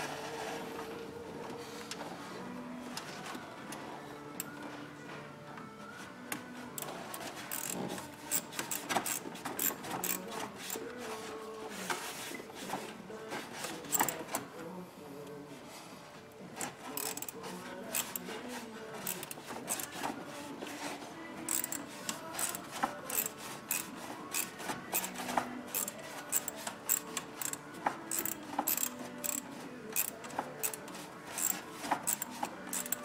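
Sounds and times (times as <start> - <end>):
hand ratchet clicking: 7.5 - 10.8, 13.9 - 14.2, 16.6 - 18.3, 19.0 - 20.0, 21.5 - 29.4, 30.0 - 33.0.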